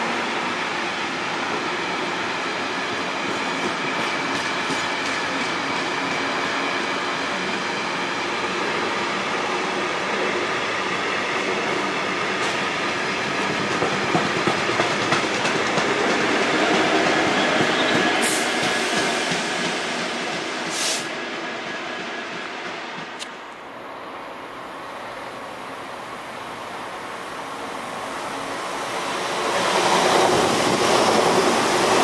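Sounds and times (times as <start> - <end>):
train wagons rumbling past: 10.9 - 23.2.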